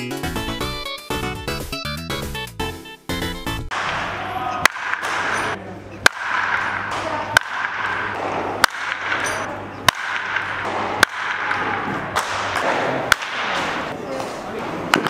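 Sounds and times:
bat hitting balls: 0:03.7 - 0:14.3
murmur of voices: 0:04.0 - 0:15.0.

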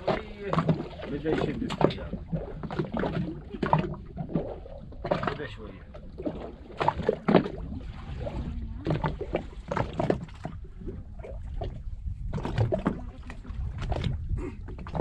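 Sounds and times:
waves slapping boat hull: 0:00.0 - 0:15.0
low rumble: 0:03.3 - 0:15.0.

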